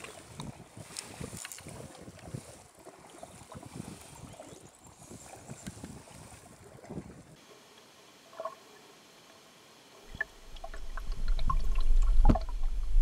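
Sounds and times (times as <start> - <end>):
low underwater rumble: 10.1 - 13.0.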